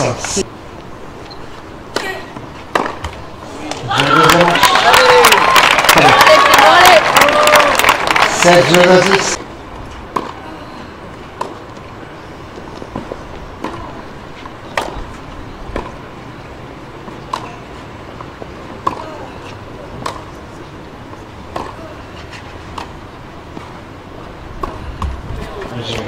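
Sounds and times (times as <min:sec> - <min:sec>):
tennis ball racket hits: 0:01.9 - 0:03.2, 0:21.5 - 0:22.9
background murmur: 0:03.2 - 0:26.0.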